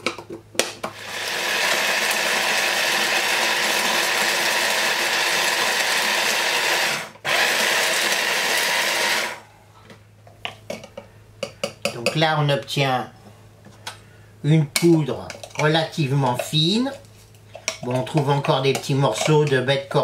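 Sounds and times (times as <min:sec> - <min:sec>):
electric blender grinding spices: 0:00.8 - 0:09.4.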